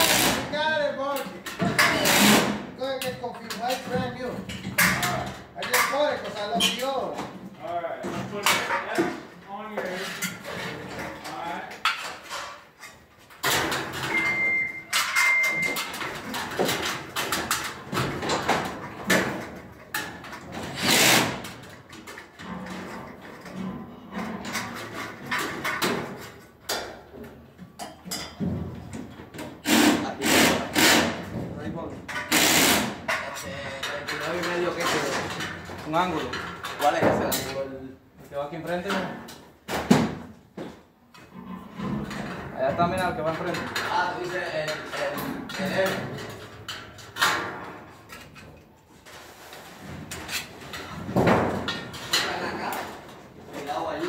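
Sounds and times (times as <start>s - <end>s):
steel studs clanking and scraping: 0.0s - 31.4s, 32.1s - 37.6s.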